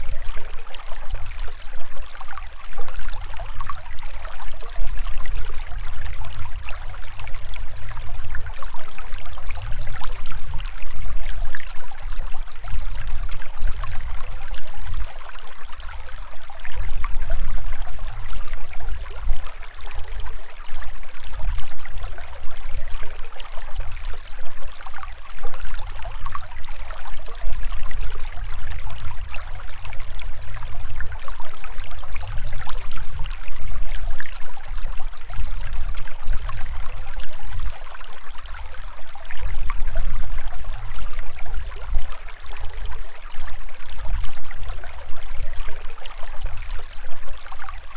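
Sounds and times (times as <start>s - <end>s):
stream splashing over stones: 0.0s - 47.9s.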